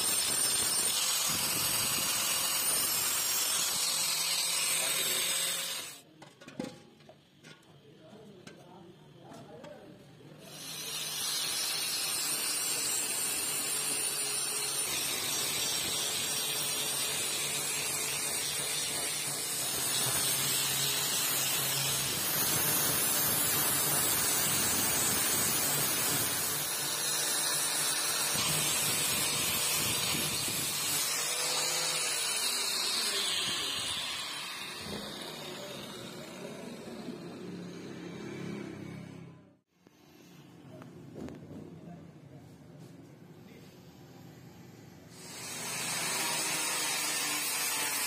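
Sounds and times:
angle grinder grinding metal: 0:00.0 - 0:06.0, 0:10.5 - 0:39.2, 0:45.1 - 0:48.0.

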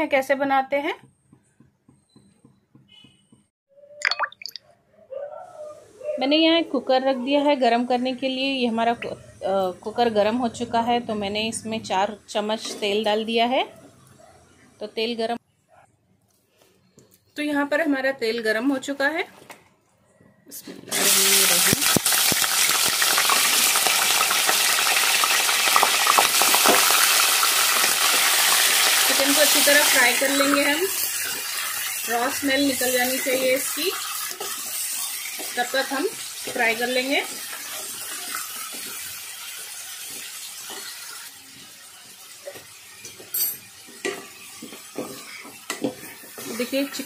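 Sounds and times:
oil popping and crackling: 0:20.9 - 0:41.4
chicken sizzling in hot oil: 0:20.9 - 0:47.0.

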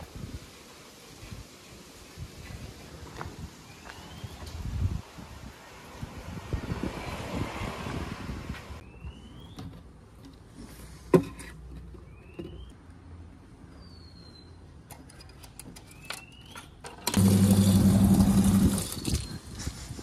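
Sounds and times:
pump humming: 0:17.2 - 0:19.2.

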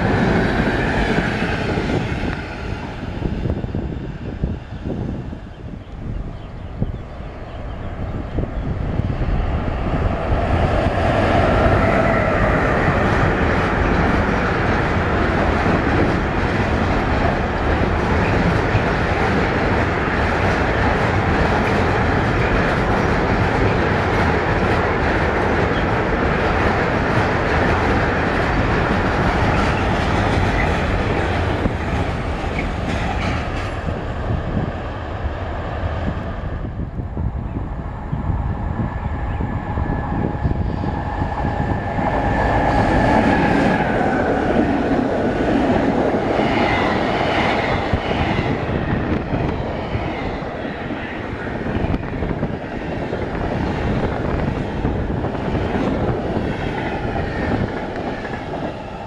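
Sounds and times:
freight train wheels rumbling on rails: 0:00.0 - 0:59.0
train clickety-clack over rail joints: 0:00.0 - 0:59.0
train whine: 0:00.0 - 0:59.0.

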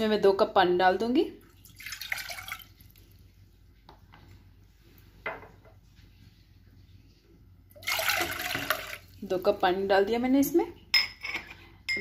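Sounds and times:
water poured into metal pan: 0:01.6 - 0:03.0, 0:07.8 - 0:09.2.

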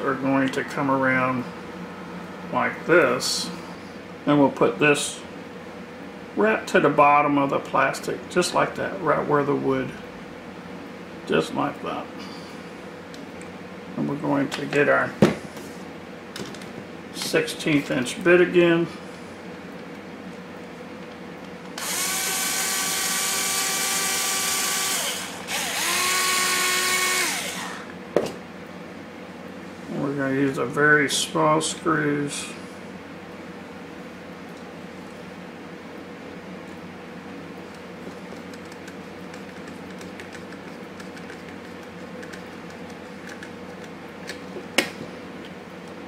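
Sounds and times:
steady background hum: 0:00.0 - 0:46.0
cordless drill motor whine: 0:21.8 - 0:28.0
screwdriver ticks and scrapes: 0:38.3 - 0:44.4.

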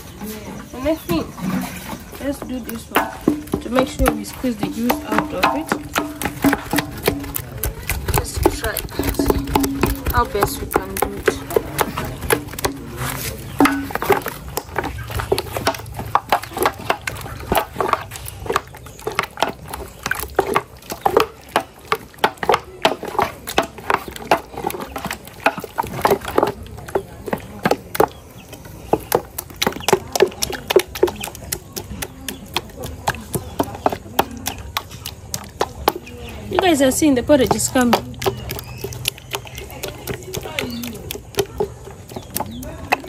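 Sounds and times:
pestle knocking: 0:02.2 - 0:43.0.

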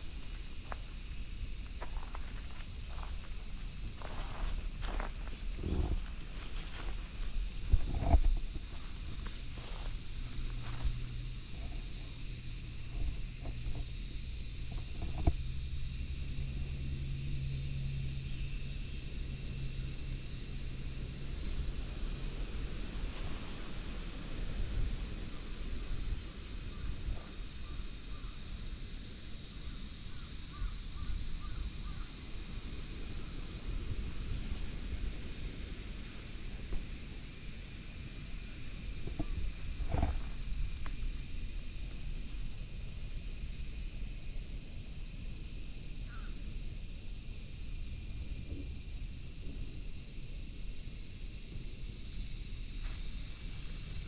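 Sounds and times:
wind rumble on microphone: 0:00.0 - 0:16.1, 0:20.4 - 0:27.8, 0:31.2 - 0:42.5
steady high hiss: 0:00.0 - 0:54.0.

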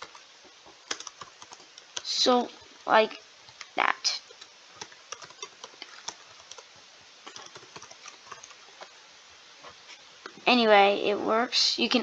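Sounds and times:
keyboard typing: 0:00.9 - 0:02.1, 0:04.3 - 0:08.9.

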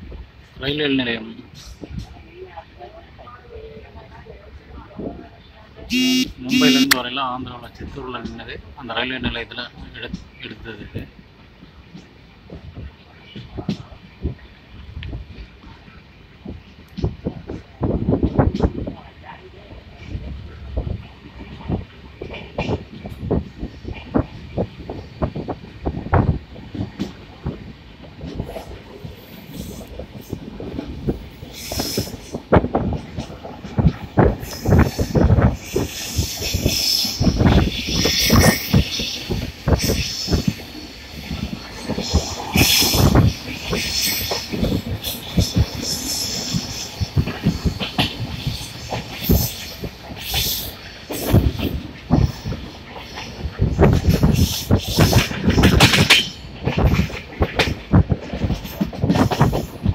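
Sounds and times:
wind hiss on microphone: 0:00.0 - 0:05.9, 0:06.5 - 0:59.9
train wheels clacking over rail joints: 0:21.6 - 0:59.9.

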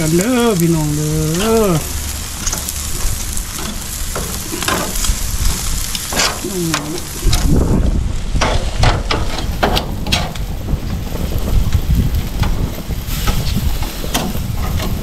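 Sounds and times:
meat sizzling on a grill: 0:00.0 - 0:15.0
metal tongs scraping a grate: 0:02.4 - 0:07.6, 0:08.4 - 0:10.4, 0:12.4 - 0:15.0.

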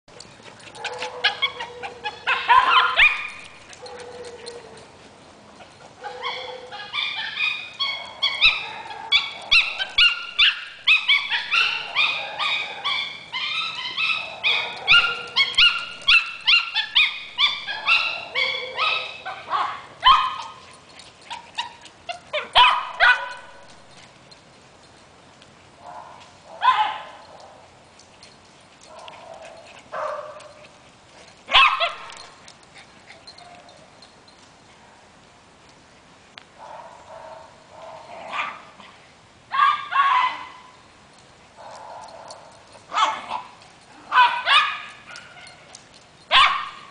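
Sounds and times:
small dog yelping: 0:00.7 - 0:04.7, 0:06.0 - 0:20.6, 0:21.3 - 0:23.8, 0:26.6 - 0:27.2, 0:31.5 - 0:32.2, 0:39.5 - 0:40.7, 0:42.9 - 0:45.7, 0:46.3 - 0:46.9.

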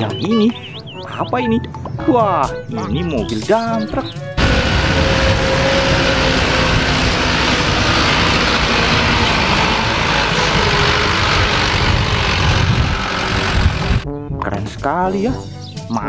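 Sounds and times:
diesel truck engine rumbling: 0:03.8 - 0:14.0
road noise: 0:03.8 - 0:14.0.

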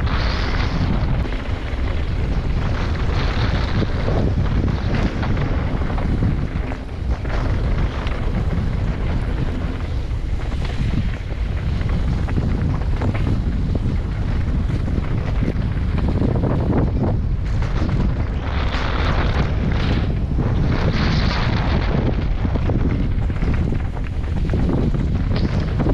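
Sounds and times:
tyres rumbling on dirt trail: 0:00.0 - 0:25.9
wind buffeting microphone: 0:00.0 - 0:25.9.

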